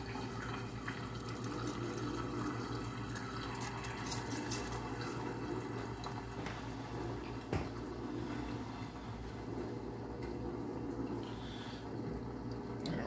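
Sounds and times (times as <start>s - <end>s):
steady low hum: 4.4s - 13.0s.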